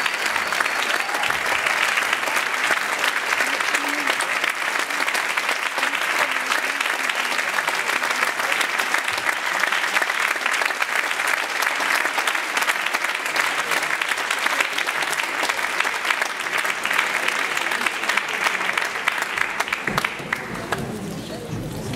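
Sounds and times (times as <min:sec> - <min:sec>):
audience applauding: 0:00.0 - 0:21.9.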